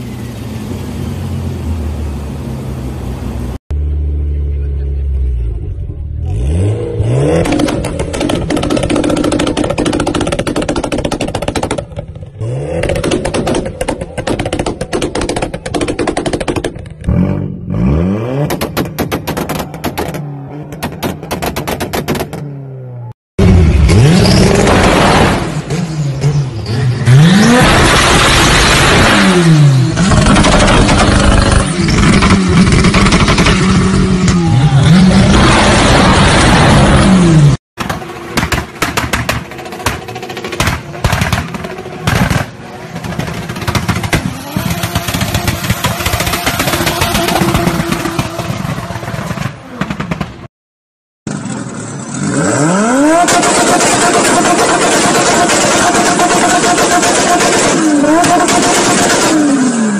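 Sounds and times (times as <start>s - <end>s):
car engine revving: 2.4s - 22.8s
exhaust pops and bangs: 7.4s - 12.2s, 12.8s - 17.1s, 18.4s - 22.5s, 30.0s - 34.4s, 37.8s - 50.5s.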